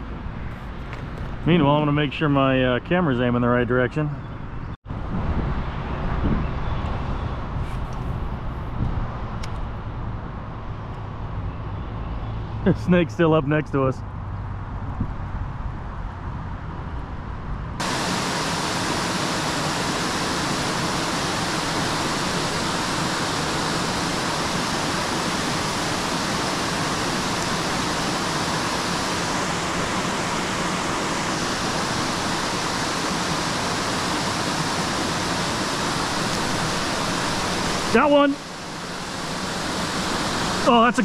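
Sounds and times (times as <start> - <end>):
waterfall rushing over rocks: 17.8 - 41.0.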